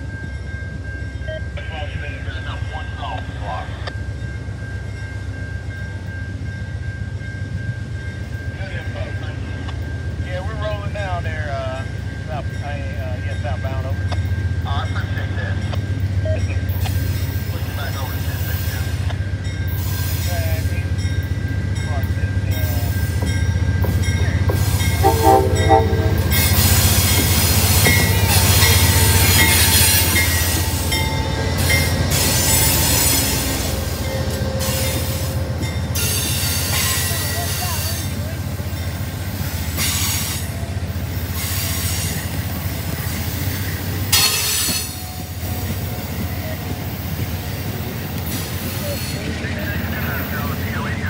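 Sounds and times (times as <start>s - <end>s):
diesel locomotive engine running: 0.0s - 51.0s
train wheel and rail noise: 0.0s - 51.0s
train horn toots: 24.8s - 38.0s
high hissing wheel squeal: 26.3s - 35.4s, 41.2s - 42.4s.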